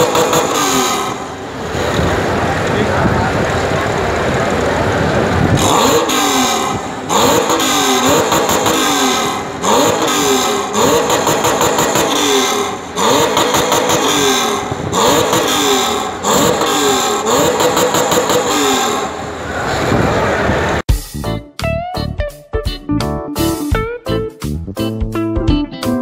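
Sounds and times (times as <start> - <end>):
motorcycle engine revving: 0.0 - 20.8.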